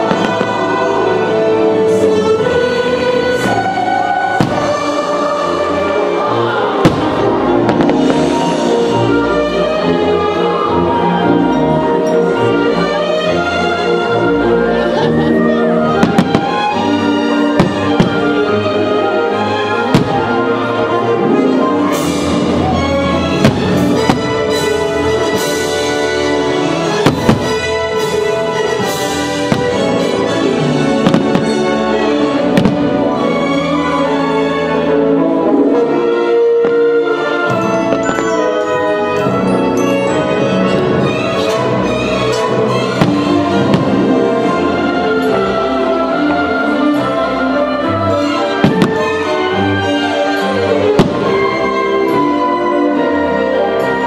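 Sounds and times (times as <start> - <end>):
soundtrack music playing: 0.0 - 54.0
fireworks bangs: 4.3 - 5.1, 6.8 - 8.6, 16.0 - 18.5, 19.8 - 20.5, 27.0 - 27.8, 28.7 - 30.2, 30.9 - 31.8, 32.6 - 33.1, 48.6 - 49.3, 50.9 - 51.6.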